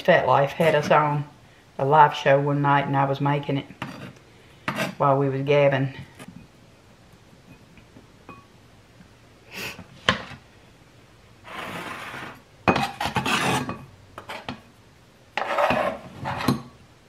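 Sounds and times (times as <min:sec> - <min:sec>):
knife scraping cutting board: 0:03.8 - 0:05.0, 0:11.4 - 0:14.6, 0:15.4 - 0:16.7.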